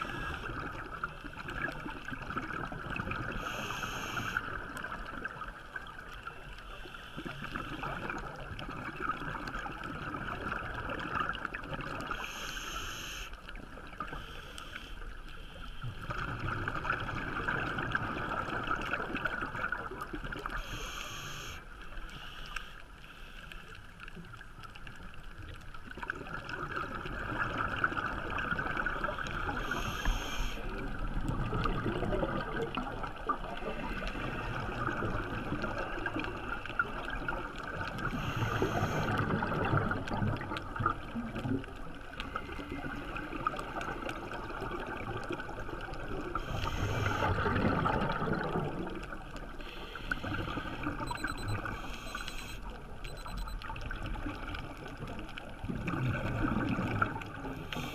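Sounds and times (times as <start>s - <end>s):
regulator hiss: 3.4s - 4.4s, 12.2s - 13.3s, 20.6s - 23.4s, 29.6s - 30.6s
bubbling exhalations underwater: 46.9s - 49.1s.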